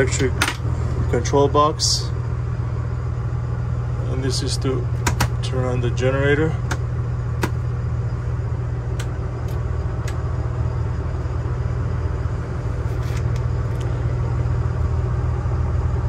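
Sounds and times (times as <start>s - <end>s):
low engine hum: 0.0s - 16.0s.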